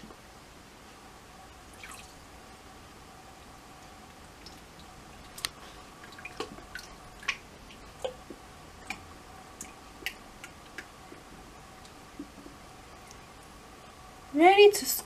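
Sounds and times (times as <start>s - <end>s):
faint steady hum: 0.0s - 15.0s
water dripping into tank: 1.5s - 2.3s, 3.4s - 13.6s.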